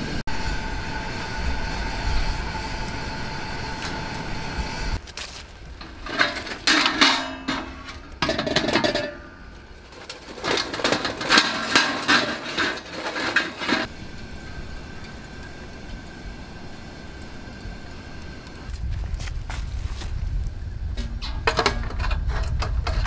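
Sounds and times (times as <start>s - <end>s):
low steady hiss: 0.0s - 22.8s
charcoal clattering: 5.0s - 15.6s, 18.5s - 23.0s
metal chimney starter clanking: 5.6s - 17.6s, 20.6s - 23.0s.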